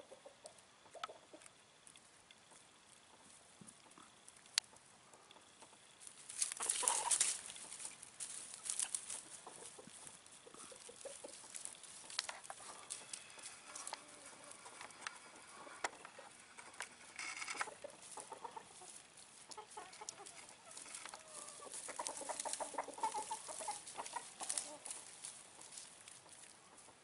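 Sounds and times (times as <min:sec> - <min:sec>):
poultry clucking: 0:00.0 - 0:01.7, 0:02.4 - 0:27.0.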